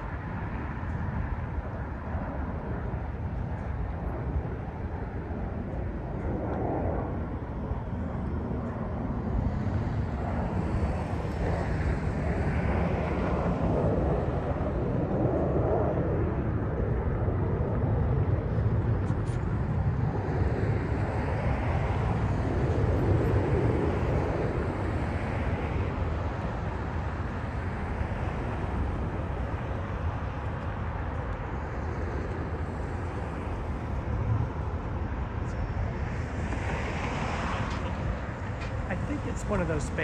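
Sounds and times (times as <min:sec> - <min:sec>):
distant jet aircraft: 0:00.0 - 0:40.0
road traffic rumble: 0:00.0 - 0:40.0.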